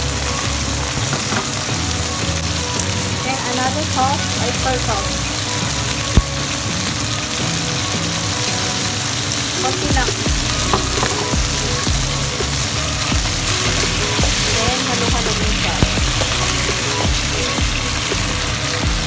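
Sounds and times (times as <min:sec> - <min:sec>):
chicken wings sizzling in oil: 0:00.0 - 0:19.0
wooden spatula scraping a wok: 0:09.6 - 0:11.8.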